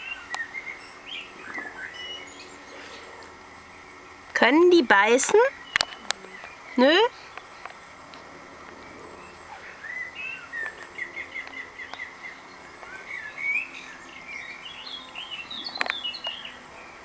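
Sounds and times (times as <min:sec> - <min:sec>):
songbirds chirping and singing: 0:00.0 - 0:17.0.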